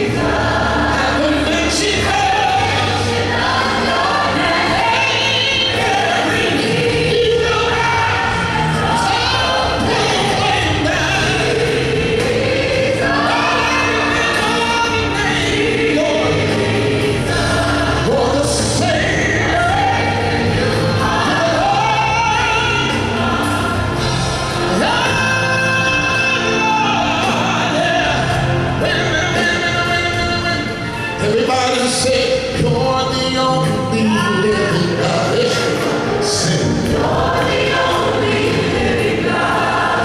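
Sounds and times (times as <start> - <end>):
choir singing: 0.0 - 33.2, 34.0 - 40.0
man singing into a microphone: 24.7 - 36.8.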